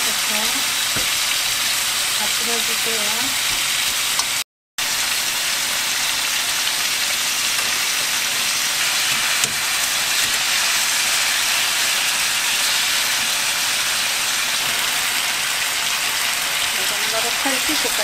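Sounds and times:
chicken sizzling in oil: 0:00.0 - 0:18.0.

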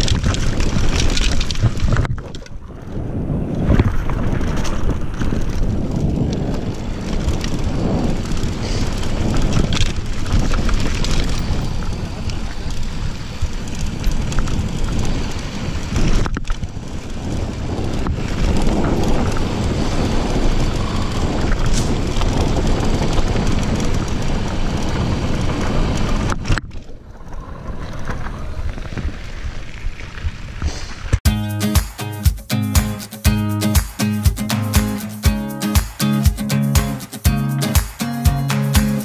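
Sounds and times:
bike tyres rolling on rock: 0:00.0 - 0:31.2
wind buffeting microphone: 0:00.0 - 0:31.2
bike rattling: 0:00.0 - 0:39.0.

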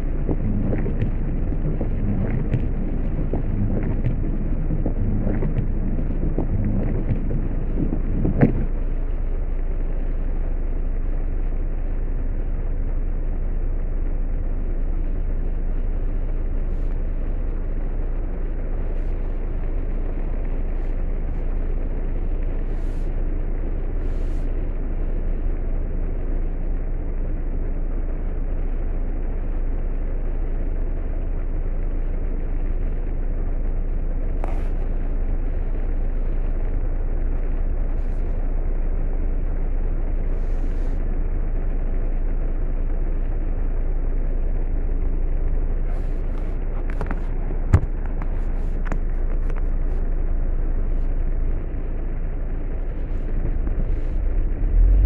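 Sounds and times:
heavy rain on a car: 0:00.0 - 0:55.0
low rumble: 0:00.0 - 0:55.0.

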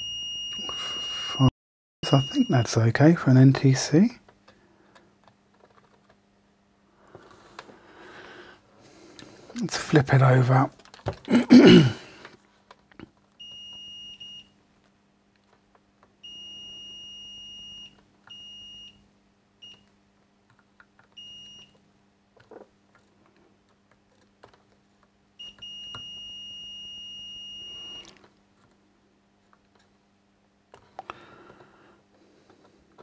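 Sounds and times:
multimeter continuity beeps: 0:00.0 - 0:02.7, 0:13.4 - 0:14.5, 0:16.2 - 0:19.0, 0:21.2 - 0:21.8, 0:25.4 - 0:28.1.

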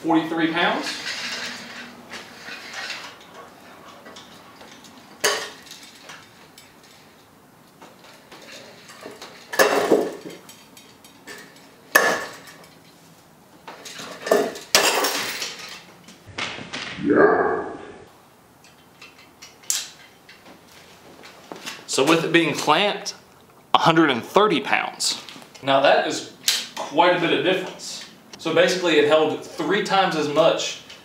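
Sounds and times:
chain and weight plates clanking: 0:00.7 - 0:07.4, 0:13.8 - 0:15.9.

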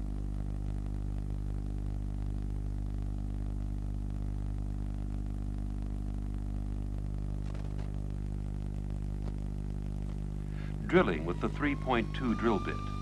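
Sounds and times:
faint hiss: 0:00.0 - 0:13.0
low electrical hum: 0:00.0 - 0:13.0.

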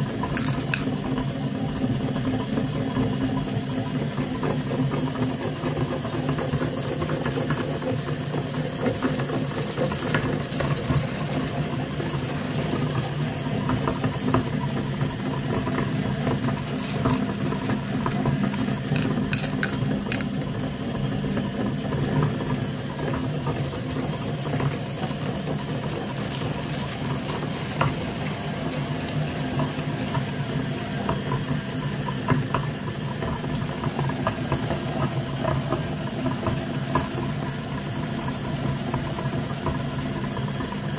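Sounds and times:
meat grinder motor hum: 0:00.0 - 0:40.9
candies crackling being crushed: 0:00.1 - 0:01.1, 0:01.7 - 0:02.8, 0:08.9 - 0:11.7, 0:16.0 - 0:20.6, 0:25.4 - 0:28.2.

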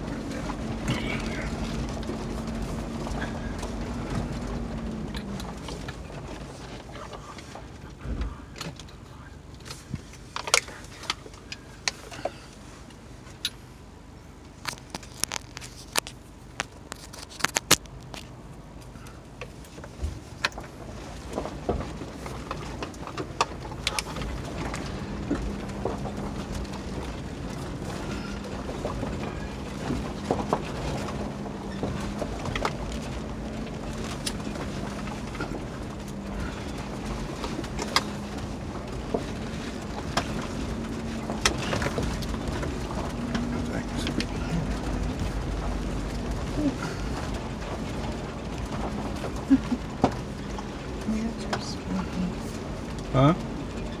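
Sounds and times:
engine hum: 0:00.0 - 0:54.0
sharp clicks and knocks: 0:14.5 - 0:46.5.

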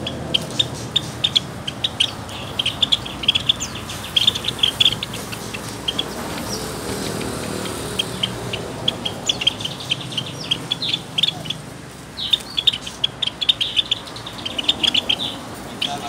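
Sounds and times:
sparrows chirping: 0:00.0 - 0:16.0.

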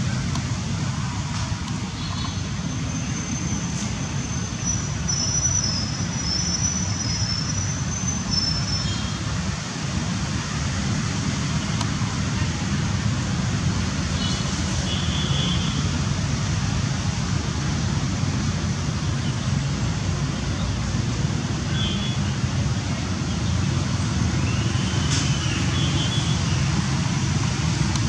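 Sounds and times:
road traffic rumble: 0:00.0 - 0:28.0.

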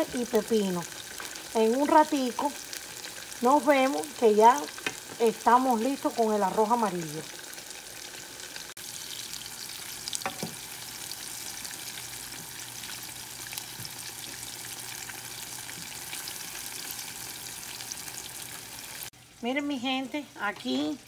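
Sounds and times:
plantain deep-frying in oil: 0:00.0 - 0:21.0.

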